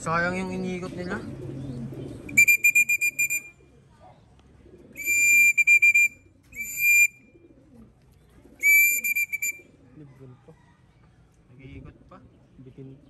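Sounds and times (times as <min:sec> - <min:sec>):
high-pitched whistle blasts: 0:02.3 - 0:03.5, 0:05.0 - 0:07.2, 0:08.6 - 0:09.6.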